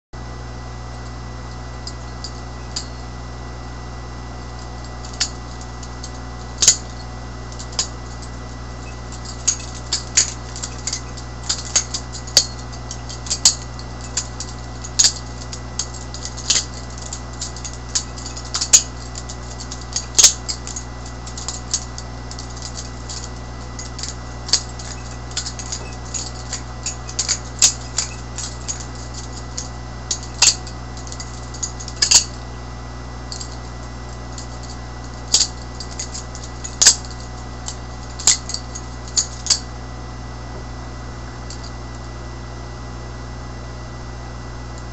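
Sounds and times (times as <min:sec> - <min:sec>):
steady low hum: 0:00.2 - 0:44.9
butterfly knife handles clacking: 0:05.0 - 0:32.4, 0:34.4 - 0:37.3, 0:38.2 - 0:39.6.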